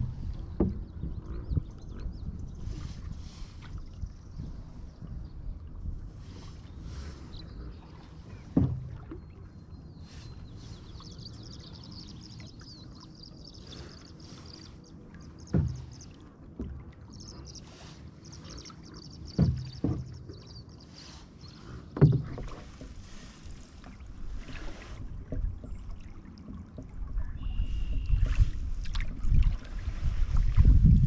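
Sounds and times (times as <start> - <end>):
paddle knocks on hull: 0.0 - 1.7, 8.2 - 9.2, 15.4 - 16.0, 19.2 - 20.5, 21.9 - 23.0
water washing along canoe hull: 0.0 - 31.0
faint high chirping trills: 10.1 - 16.1, 17.1 - 21.5.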